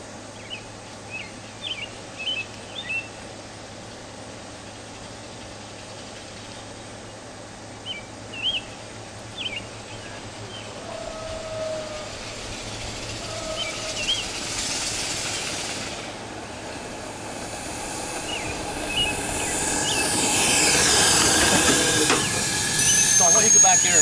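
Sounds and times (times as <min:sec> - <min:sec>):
steam motorcycle passing: 0:11.9 - 0:24.0.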